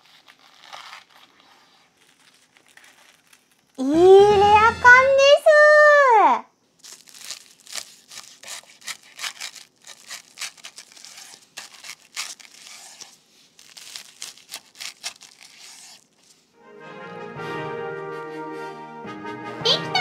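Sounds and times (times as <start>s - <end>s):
knife crunching through crispy breading: 0.0s - 3.8s, 6.8s - 16.2s.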